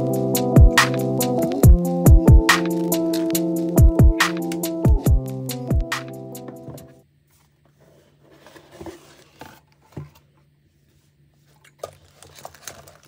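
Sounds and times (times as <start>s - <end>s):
electronic music: 0.0s - 7.0s.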